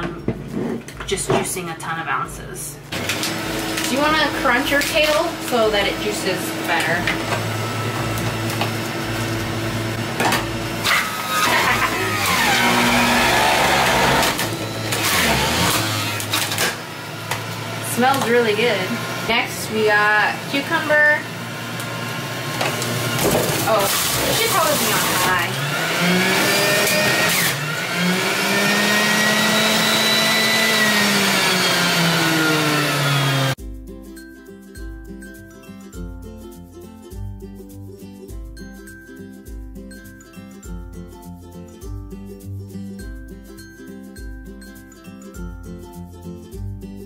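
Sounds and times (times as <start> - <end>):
juicer shredding greens: 2.9 - 33.6.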